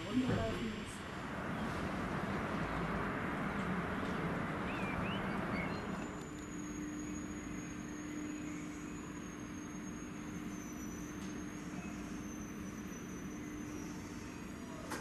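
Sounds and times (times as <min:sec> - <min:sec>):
funicular car running: 0:00.0 - 0:15.0
low hum with high whine: 0:00.0 - 0:15.0.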